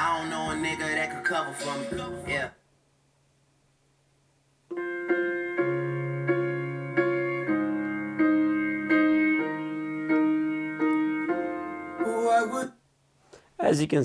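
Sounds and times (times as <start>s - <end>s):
piano music through a speaker: 0.0s - 2.6s, 4.7s - 12.8s.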